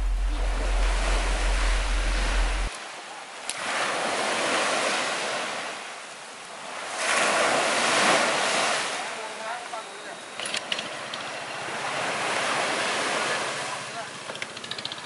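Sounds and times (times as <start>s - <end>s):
steady low rumble: 0.0s - 2.7s
sea waves washing on beach: 0.0s - 14.9s.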